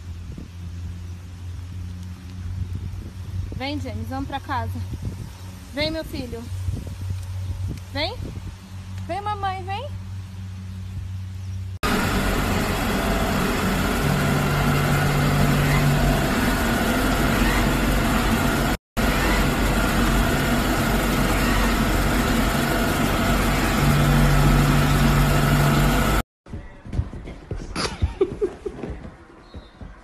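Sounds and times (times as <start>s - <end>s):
deeper hum: 11.8s - 26.2s
robot vacuum cleaner running: 11.8s - 26.2s.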